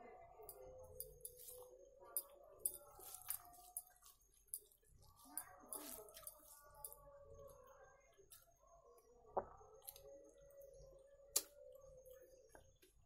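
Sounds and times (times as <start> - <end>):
fingers squishing rice: 0.5 - 7.0.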